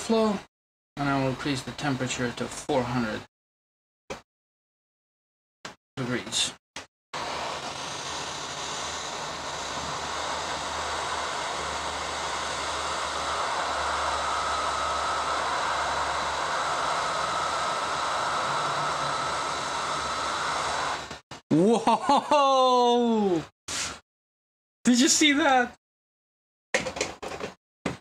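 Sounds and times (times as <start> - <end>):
hot air blower hissing: 7.2 - 21.2.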